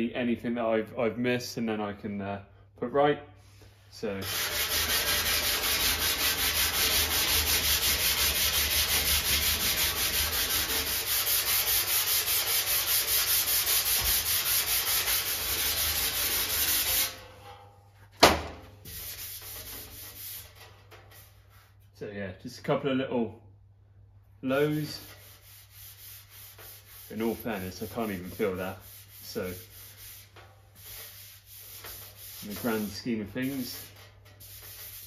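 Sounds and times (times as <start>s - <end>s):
hand sanding metal: 4.2s - 17.3s, 18.9s - 21.7s, 24.5s - 35.0s.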